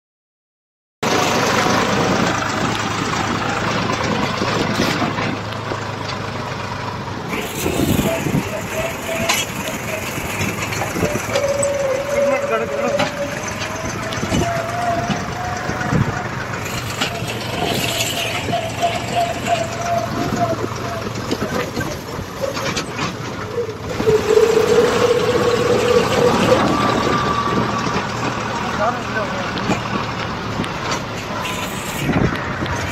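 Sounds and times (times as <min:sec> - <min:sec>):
tractor diesel engine running: 0:01.0 - 0:32.9
steady high tone: 0:23.6 - 0:29.1.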